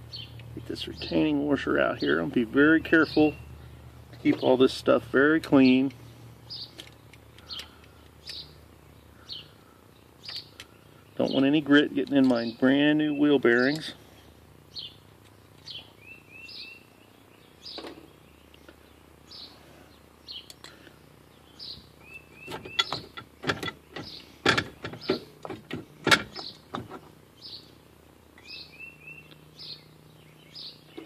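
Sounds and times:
birds chirping: 0.0 - 31.0
bird trill: 15.6 - 17.8, 28.4 - 31.0.

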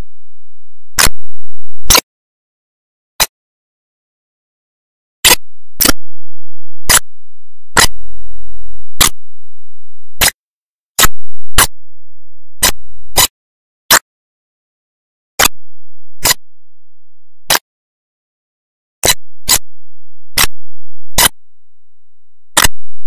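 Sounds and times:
short loud clicks: 1.8 - 2.0, 22.6 - 22.8.

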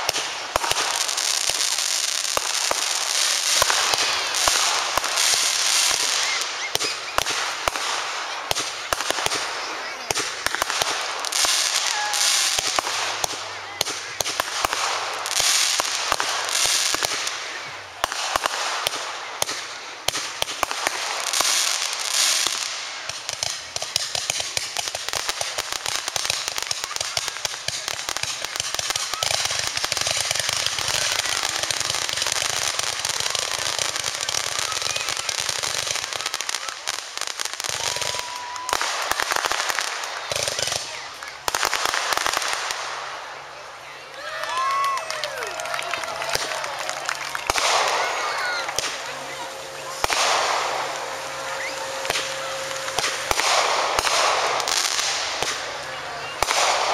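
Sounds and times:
rapid firework crackle: 0.0 - 56.9
firework shells bursting: 46.3 - 56.9.

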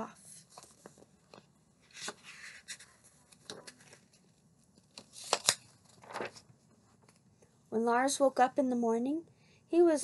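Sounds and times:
paper pages rustling: 0.2 - 7.2
crisp paper snaps: 5.0 - 6.3.

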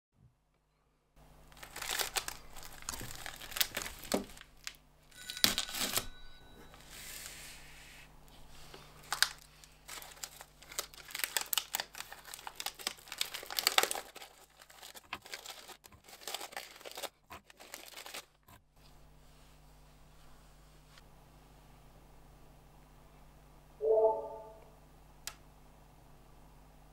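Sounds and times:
plastic wrapper tearing and crinkling: 1.5 - 4.8, 5.4 - 6.0, 9.0 - 18.4.

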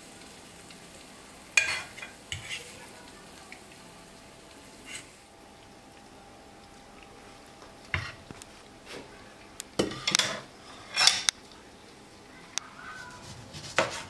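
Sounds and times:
kitchenware clinking and knocking: 9.8 - 11.3.

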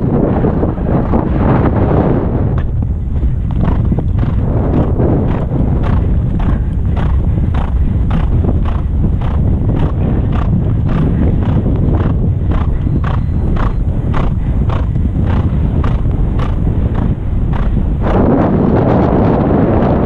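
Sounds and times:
wind rumble on microphone: 0.0 - 20.0
horse hoofbeats on turf: 2.5 - 18.4.

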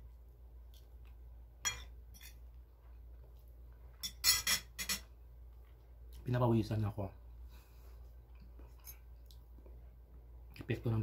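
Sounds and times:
cutlery clinking on a plate: 1.6 - 2.4, 4.0 - 5.1.

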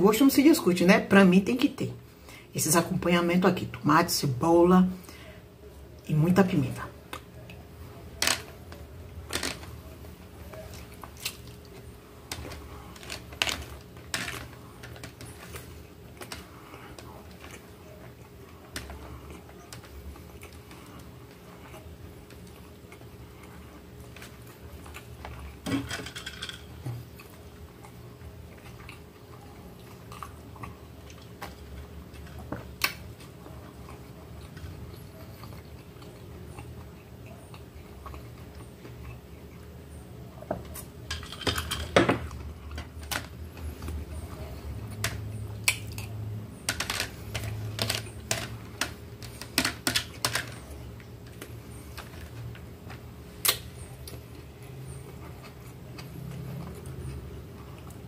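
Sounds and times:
chewing: 9.4 - 25.6, 26.8 - 41.0, 47.2 - 58.0.

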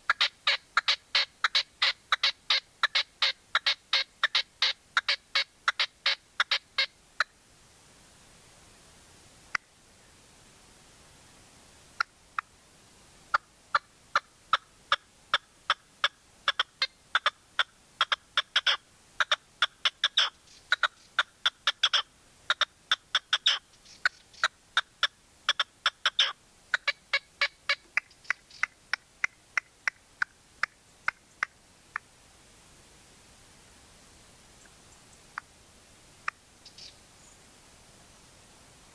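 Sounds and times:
partridge calling sharp notes: 0.1 - 7.3, 13.3 - 31.6, 36.2 - 37.0.

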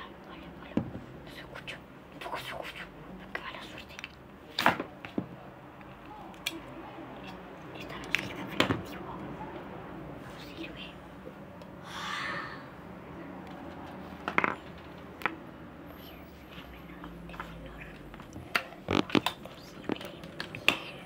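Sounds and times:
breathy whisper: 0.0 - 4.0, 10.2 - 11.2, 11.8 - 12.9, 15.8 - 18.2, 19.4 - 21.0.

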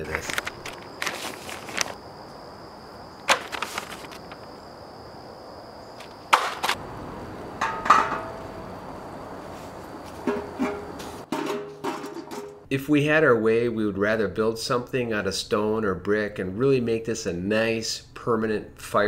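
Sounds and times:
metal parts knocking and rattling: 10.3 - 12.7.

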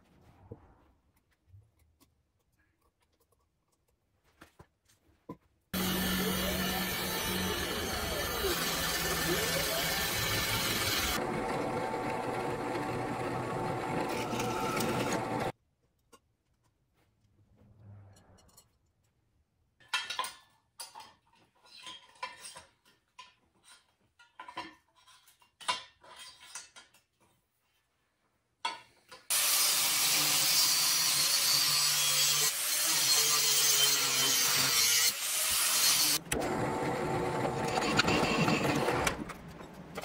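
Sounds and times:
angle grinder on steel: 5.8 - 15.5, 29.3 - 39.2.

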